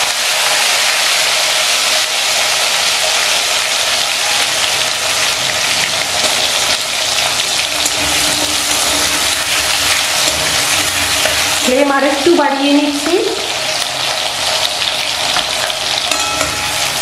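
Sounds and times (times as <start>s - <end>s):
potato wedges sizzling in oil: 0.0s - 17.0s
metal spatula stirring: 6.2s - 11.7s, 15.2s - 17.0s.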